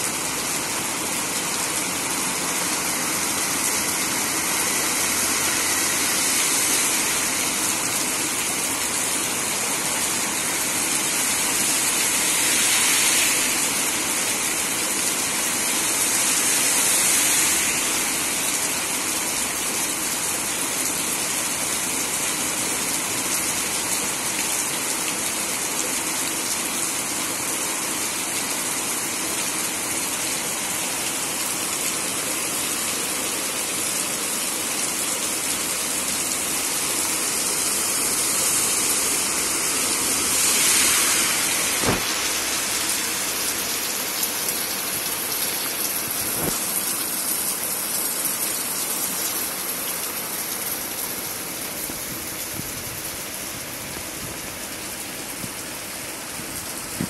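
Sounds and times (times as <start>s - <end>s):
heavy rain falling: 0.0s - 57.0s
sharp knock: 41.8s - 42.3s.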